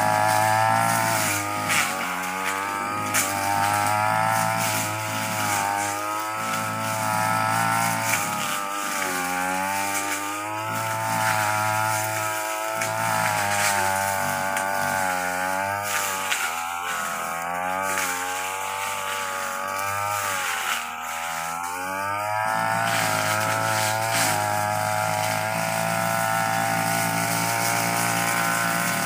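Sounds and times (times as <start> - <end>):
brush cutter engine running: 0.0 - 29.0
line cutting through grass: 0.0 - 29.0.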